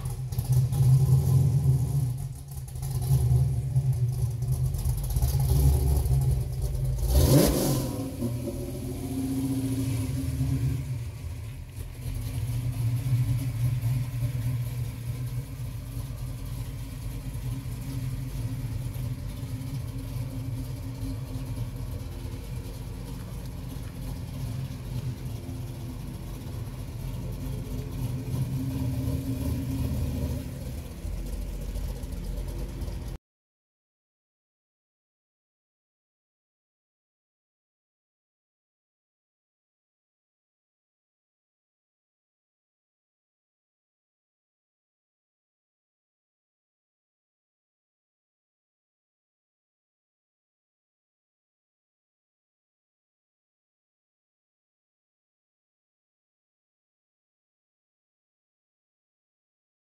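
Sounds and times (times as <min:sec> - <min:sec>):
car engine rumbling and revving: 0:00.0 - 0:33.2.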